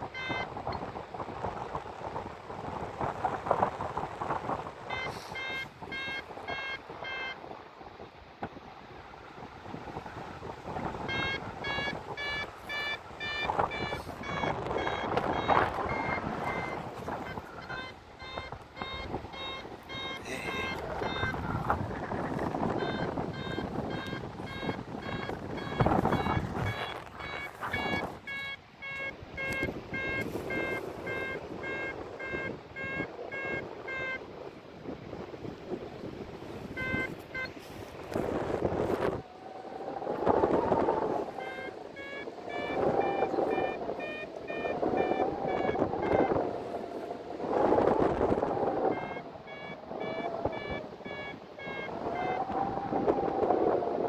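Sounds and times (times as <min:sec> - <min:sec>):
variometer beeping: 0:00.0 - 0:00.8, 0:04.9 - 0:07.4, 0:10.9 - 0:34.2, 0:36.8 - 0:37.6, 0:40.7 - 0:46.5, 0:48.0 - 0:53.0
wind rushing past microphone: 0:00.0 - 0:54.0.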